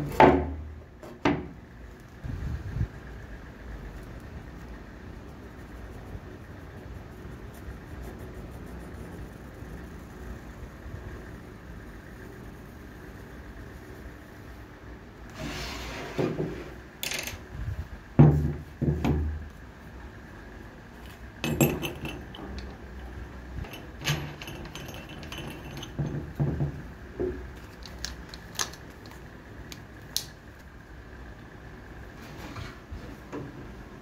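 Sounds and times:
metal clinks and knocks: 21.4 - 27.9.

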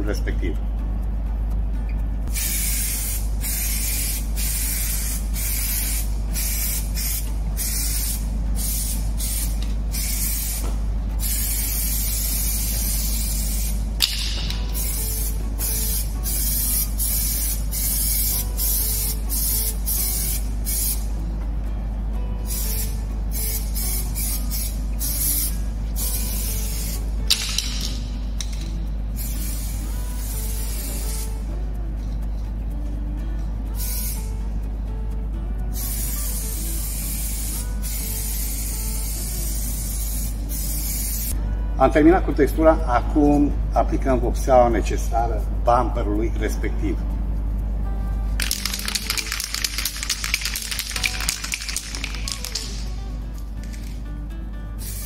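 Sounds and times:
aerosol can spraying: 2.3 - 21.2, 22.4 - 31.5, 33.7 - 34.4, 35.7 - 41.4, 48.4 - 54.0, 54.8 - 55.0
sharp click: 14.0 - 14.7.

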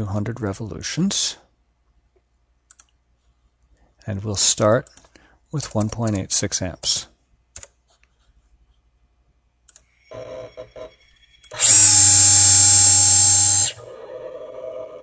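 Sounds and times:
servo motor whine: 11.6 - 13.9.

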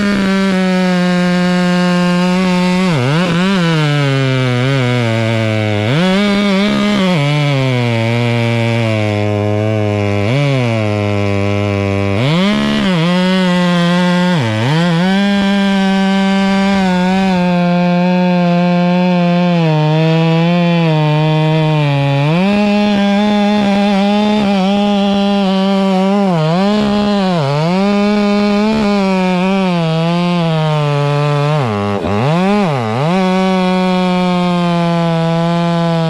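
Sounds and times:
chainsaw cutting wood: 0.0 - 36.0.

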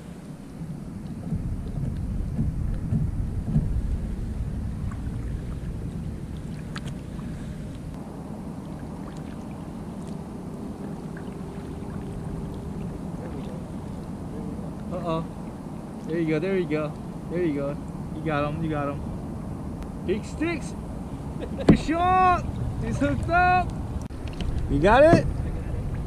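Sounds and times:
kayak paddle strokes in water: 0.0 - 17.1
faint steady hum: 0.0 - 26.0
wind rumbling on microphone: 0.0 - 26.0.

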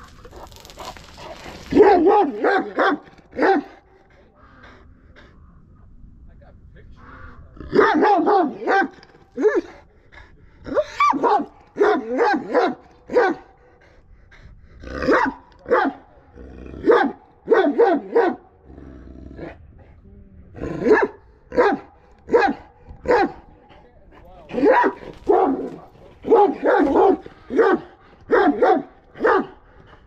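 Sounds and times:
dog barking: 0.4 - 3.8, 7.8 - 9.7, 10.8 - 13.5, 15.1 - 16.0, 16.8 - 18.5, 20.8 - 23.4, 24.6 - 29.6.

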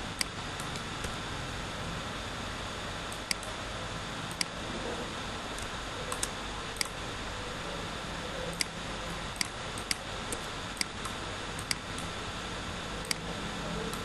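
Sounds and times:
steady background hiss: 0.0 - 14.0
computer mouse clicking: 4.3 - 4.6, 5.6 - 7.0, 8.5 - 8.8, 9.4 - 12.1.

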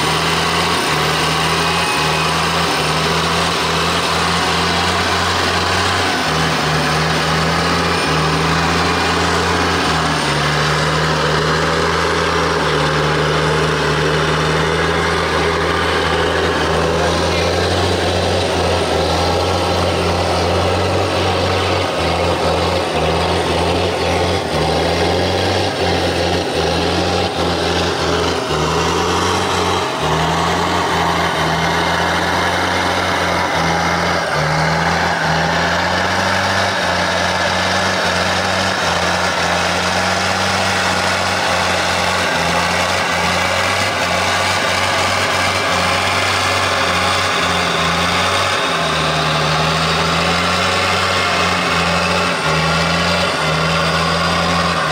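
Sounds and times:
off-road vehicle engine running: 0.0 - 54.9.

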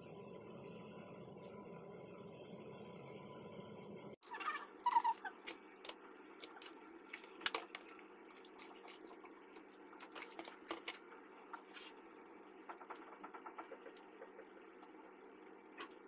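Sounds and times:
water dripping and trickling: 6.4 - 11.0.

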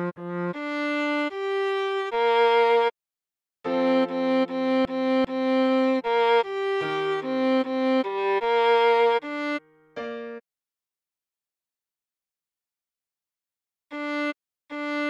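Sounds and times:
viola melody: 0.0 - 2.9, 3.7 - 10.4, 13.9 - 15.0.

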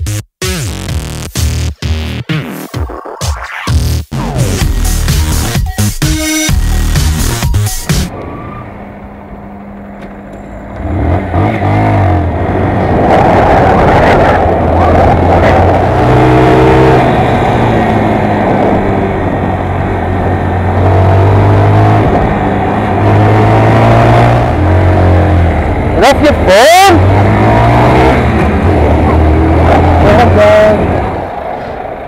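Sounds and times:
motorcycle engine through gears: 8.1 - 31.9
wind and road noise: 8.1 - 32.0.

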